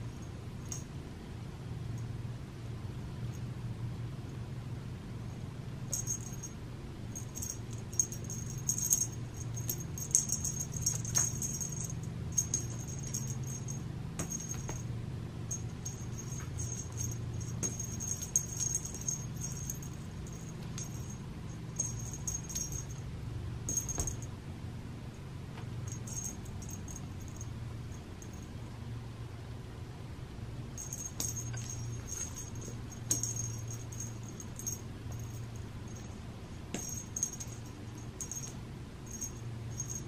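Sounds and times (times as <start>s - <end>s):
steady low hum: 0.0s - 40.0s
cat toy jingling and rattling: 5.9s - 14.9s, 15.5s - 23.0s, 23.7s - 24.3s, 25.8s - 28.5s, 30.8s - 40.0s.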